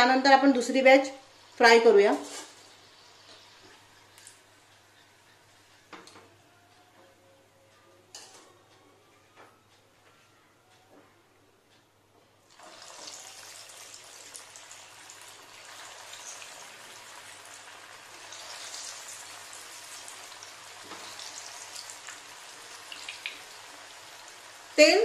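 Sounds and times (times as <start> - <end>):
food deep-frying in oil: 12.5 - 25.0.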